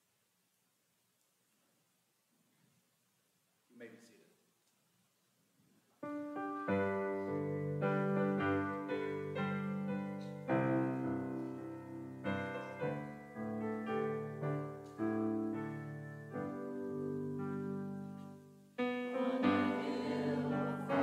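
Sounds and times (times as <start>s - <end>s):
slow piano chords: 6.0s - 21.0s.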